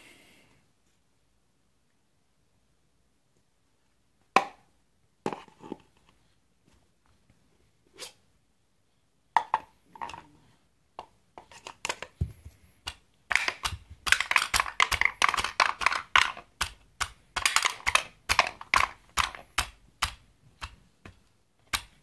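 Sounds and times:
wooden balls clattering: 11.6 - 19.6.

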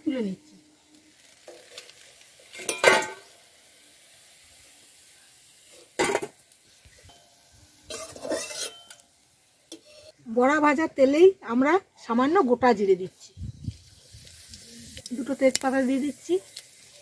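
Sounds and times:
oil sizzling: 0.0 - 17.0
metal spatula clattering: 7.9 - 9.0.

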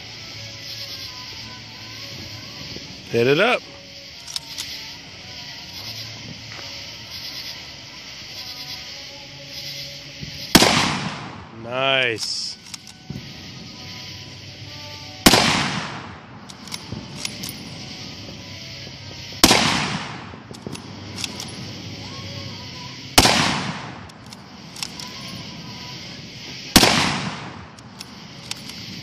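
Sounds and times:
small clicks: 4.2 - 4.8, 12.6 - 13.0, 24.0 - 25.4, 27.8 - 28.9
rifle shots: 10.3 - 13.2, 15.2 - 18.2, 19.3 - 21.8, 23.2 - 25.4, 26.7 - 29.0.

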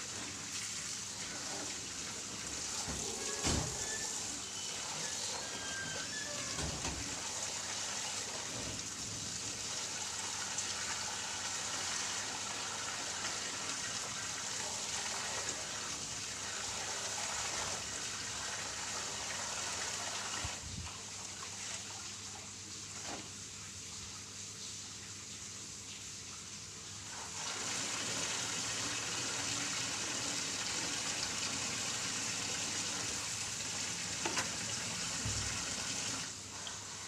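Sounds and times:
laundry washed by hand: 0.0 - 37.0
tap water splashing into basin: 34.1 - 36.8.

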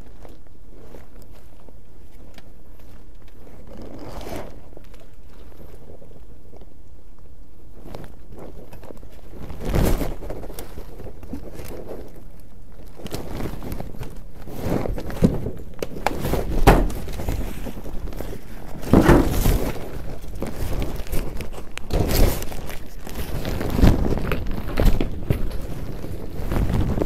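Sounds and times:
clothing rustling on microphone: 0.0 - 27.0
thumps and knocks: 18.8 - 19.8.

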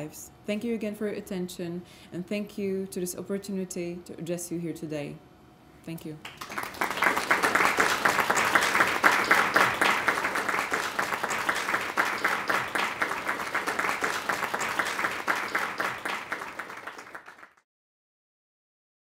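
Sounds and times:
audience applauding: 6.2 - 17.6.

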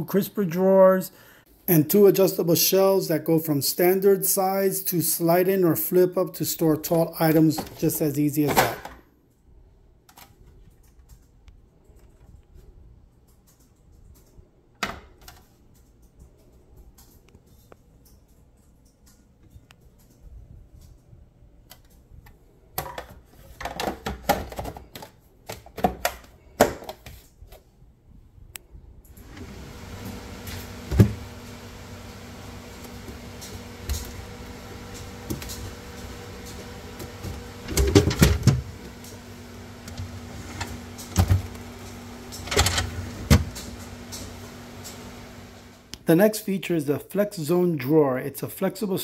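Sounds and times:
plastic drawers clicking and knocking: 22.8 - 27.2, 29.2 - 45.2
steady low hum: 29.1 - 46.0.

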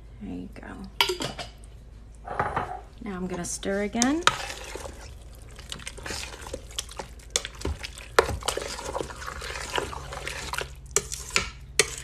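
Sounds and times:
thick sauce sloshing: 2.9 - 12.0
spoon scraping metal pot: 3.3 - 5.1, 8.2 - 12.0.

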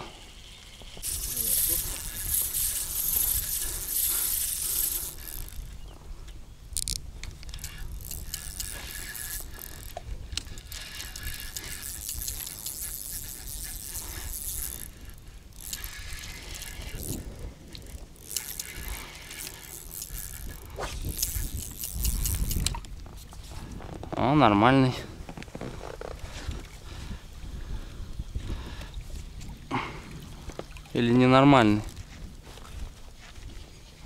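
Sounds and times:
fishing reel gears whirring: 0.0 - 22.9, 31.5 - 32.0.

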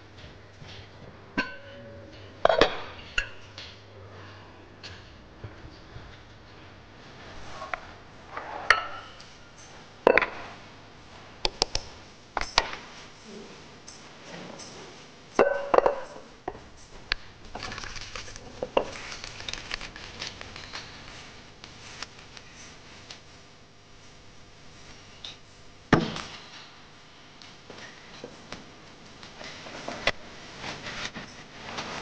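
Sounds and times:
pots and utensils clinking: 1.4 - 3.5, 15.4 - 16.3.

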